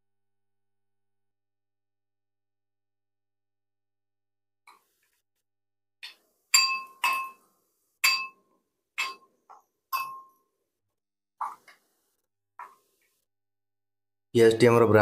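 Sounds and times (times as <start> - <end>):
spoon clinking on glass bowl: 6.0 - 10.4.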